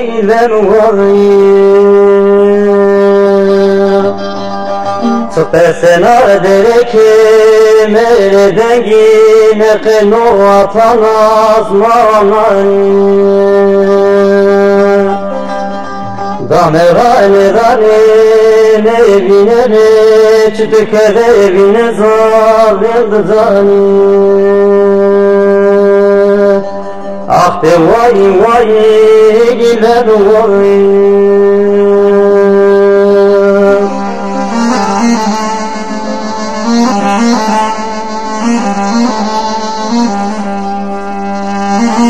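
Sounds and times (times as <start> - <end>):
held drone note: 2.6 - 5.6, 30.8 - 42.0
ornamented wavering melody: 3.3 - 5.6, 32.3 - 42.0.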